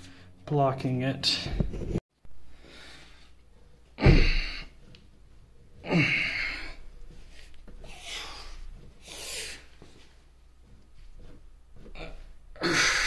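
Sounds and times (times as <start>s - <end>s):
man grunting: 5.9s - 6.8s.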